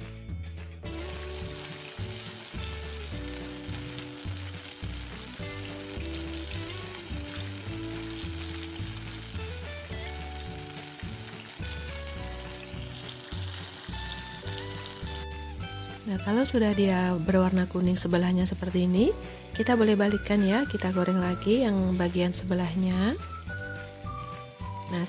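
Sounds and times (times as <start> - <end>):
background music: 0.0 - 25.0
oil sizzling in a pan: 0.8 - 25.0.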